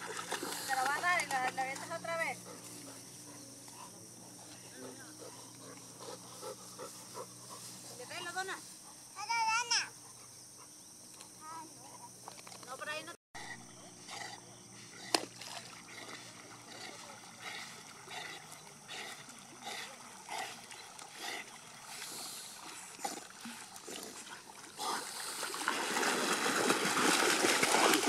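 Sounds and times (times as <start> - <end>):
dogs splashing in water: 0.0 - 8.2, 14.8 - 28.0.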